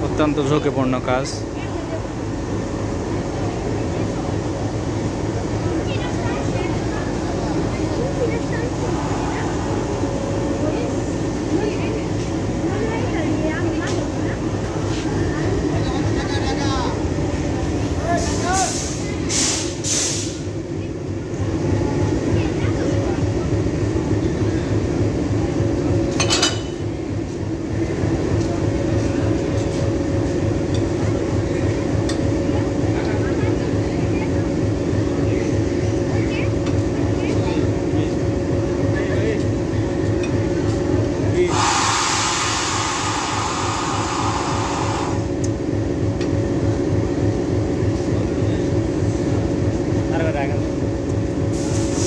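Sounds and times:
locomotive engine idling: 0.0 - 19.3
diesel locomotive engine idling: 0.0 - 52.0
loud hiss: 18.6 - 20.4, 41.5 - 45.3.

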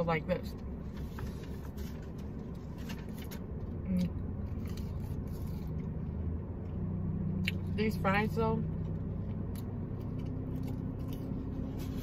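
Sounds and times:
low hum in car cabin: 0.0 - 12.0
person chewing fries: 4.0 - 6.0, 9.3 - 12.0.

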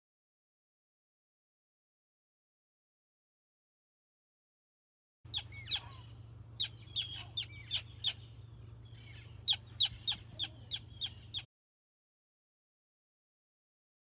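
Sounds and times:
terns calling: 5.3 - 11.5.

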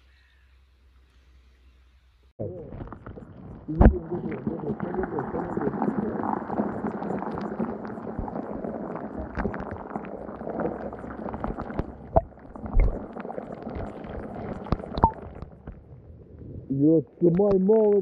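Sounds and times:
muffled underwater rumble: 2.4 - 18.0
underwater clicks and knocks: 6.3 - 15.9.

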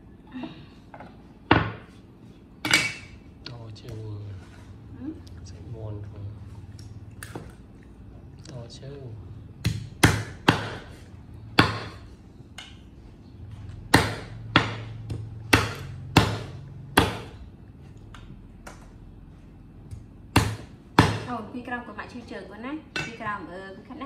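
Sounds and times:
cleaver chopping on wooden board: 9.6 - 10.9, 11.6 - 12.0, 13.9 - 17.4, 19.9 - 21.3.

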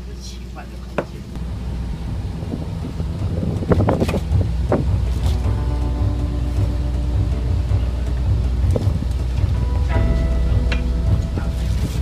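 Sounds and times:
wind buffeting microphone: 1.0 - 12.0.

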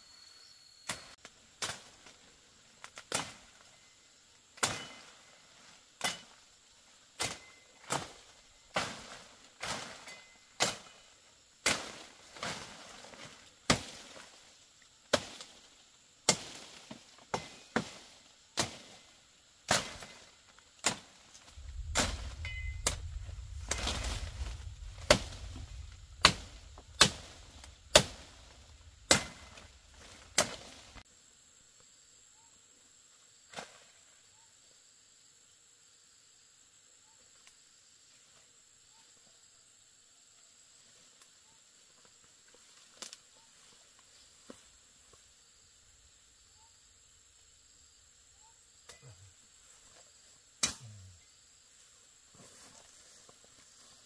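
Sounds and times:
low rumble: 21.5 - 31.0.

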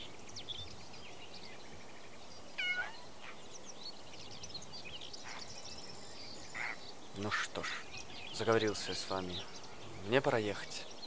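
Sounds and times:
small birds chirping: 0.0 - 11.0
kitten meowing: 2.6 - 3.0.

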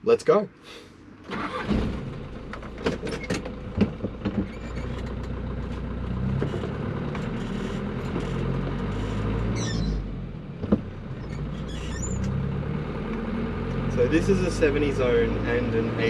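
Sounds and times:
gear shift clunk: 1.3 - 5.8
truck engine pulling away: 1.3 - 16.0.

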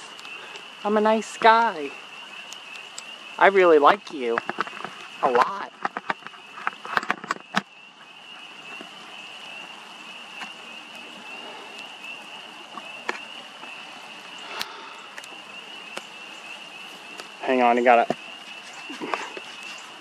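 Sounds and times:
frogs trilling: 0.0 - 20.0
sharp clicks: 14.5 - 16.1.

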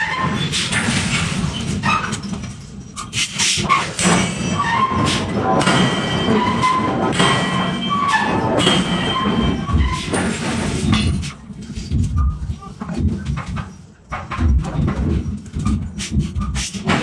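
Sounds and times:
heavy machinery rumbling: 0.0 - 17.0
short squeals: 3.0 - 10.4
sharp metallic knocks: 3.7 - 11.3.

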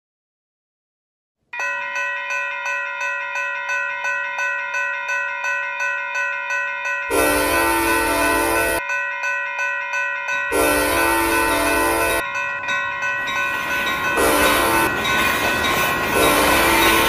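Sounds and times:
crossing bells ringing: 1.6 - 17.0
diesel locomotive horn blasts: 7.1 - 8.8, 10.5 - 12.2, 14.2 - 15.0, 16.1 - 17.0
train rumble: 10.5 - 17.0.

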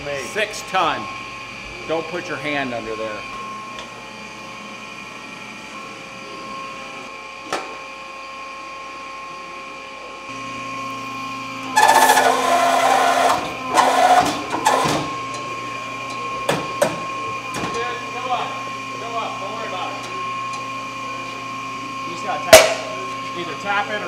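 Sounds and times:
press motor humming: 11.5 - 16.3
metal clank: 22.5 - 23.0.

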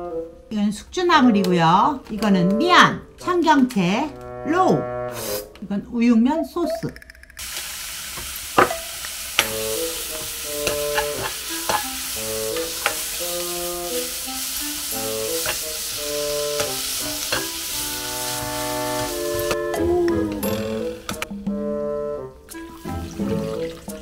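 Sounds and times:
beef sizzling in a frying pan: 7.4 - 19.7
spatula scraping a pan: 10.2 - 14.0.

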